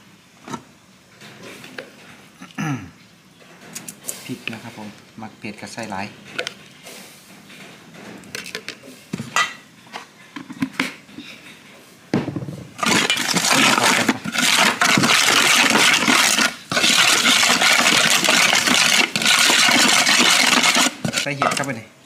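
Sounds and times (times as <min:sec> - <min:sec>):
spoon scraping gritty chili: 0:12.8 - 0:21.8.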